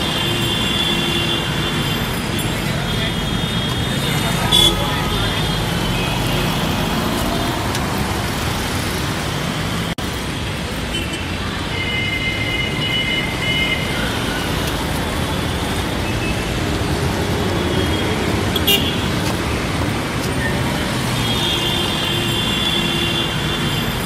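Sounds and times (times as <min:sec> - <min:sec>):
car horns: 0:00.0 - 0:06.8, 0:17.5 - 0:19.3
road traffic: 0:00.0 - 0:24.0.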